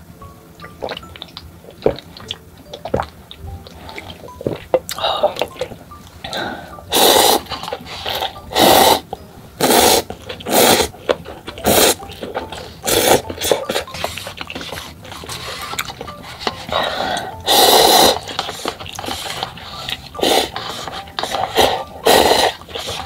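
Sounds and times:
soft mouth sounds: 0.6 - 23.0
loud slurping of noodles: 6.9 - 9.0, 9.6 - 10.9, 12.8 - 15.8, 16.7 - 23.0.

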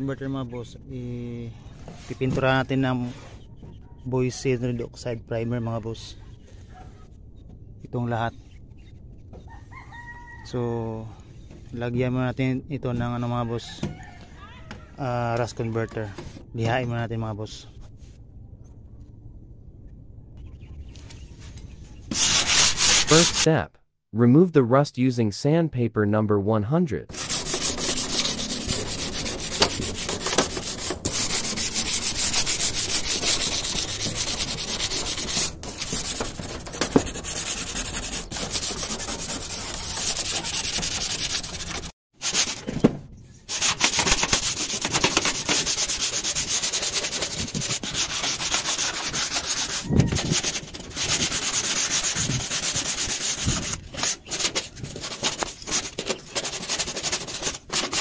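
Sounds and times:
sandpaper scraping metal sheet: 22.1 - 23.5, 27.1 - 42.7, 43.4 - 58.0.

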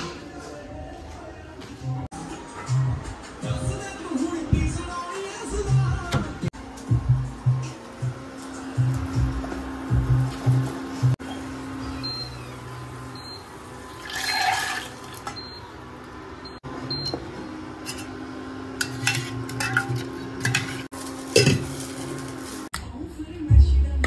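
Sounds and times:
pots and utensils clinking: 17.0 - 22.5.

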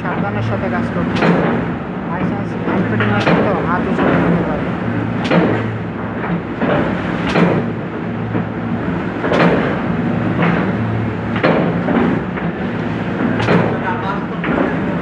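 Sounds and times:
die-cutting machine clacking: 0.0 - 15.0
motor hum: 0.0 - 15.0
muted mechanical knock: 1.1 - 4.6, 5.2 - 8.6, 9.2 - 15.0.

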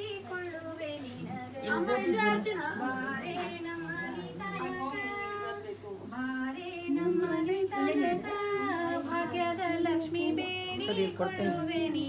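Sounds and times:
women singing together: 0.0 - 12.0.

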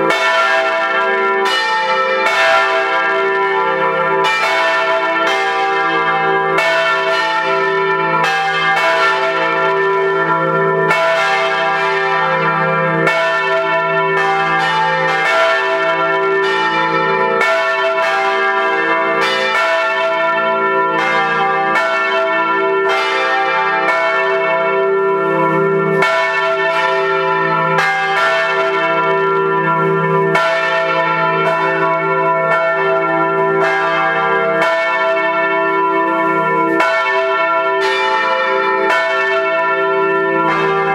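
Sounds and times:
church bells pealing: 0.0 - 40.9.

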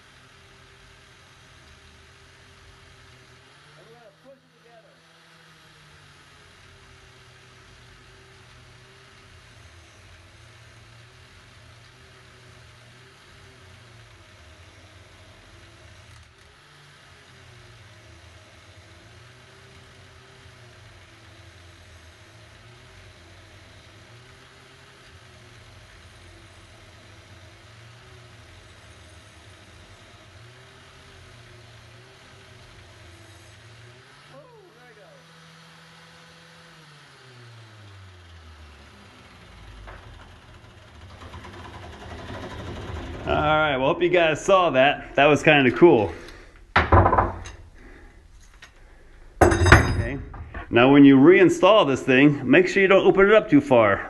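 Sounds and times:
angle grinder whirring: 0.0 - 54.0.

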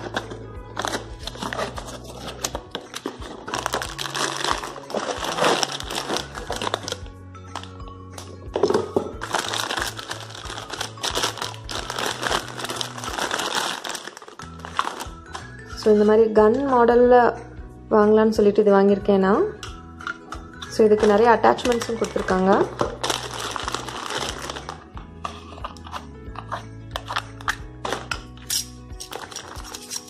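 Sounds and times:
packaging crinkling and rustling: 0.0 - 7.8, 8.6 - 15.6, 21.0 - 26.0, 29.0 - 30.0
background music with bass: 0.0 - 13.5, 14.4 - 30.0.

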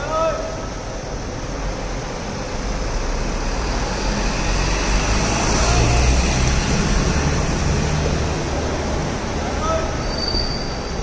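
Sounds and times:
street traffic hum: 0.0 - 11.0
truck engine rumble passing: 3.4 - 10.1.

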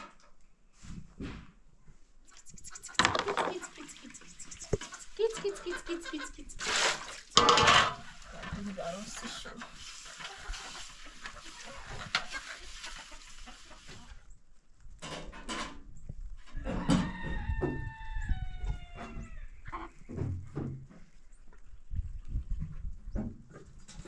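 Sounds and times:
rooster clucking: 2.4 - 8.3, 9.2 - 14.2
rooster crowing: 16.6 - 19.4.

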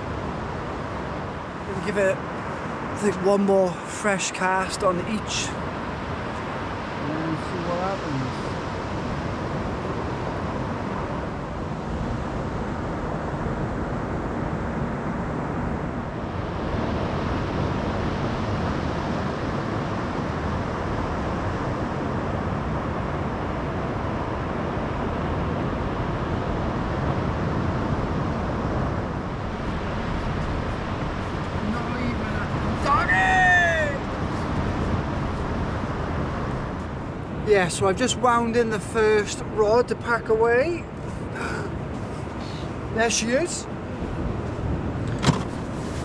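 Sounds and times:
wind blowing across microphone: 0.0 - 46.0
surf breaking on beach: 24.8 - 37.6.

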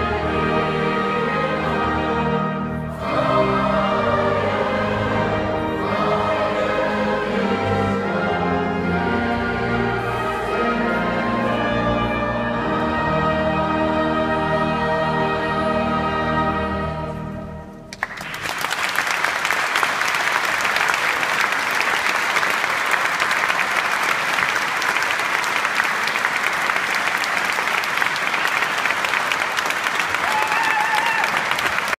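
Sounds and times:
choir singing held chord: 0.0 - 17.8
audience applauding: 17.9 - 32.0.

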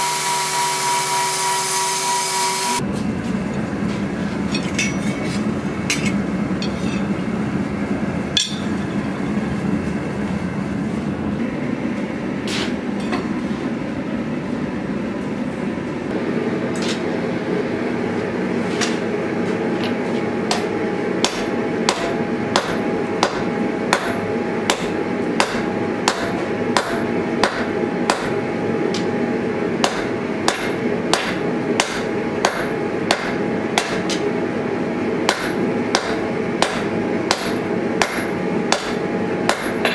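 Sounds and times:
hammer striking metal on anvil: 5.9 - 7.2, 8.3 - 9.2, 20.4 - 29.1, 29.8 - 34.2, 35.3 - 39.9
anvil ringing: 8.4 - 9.1.

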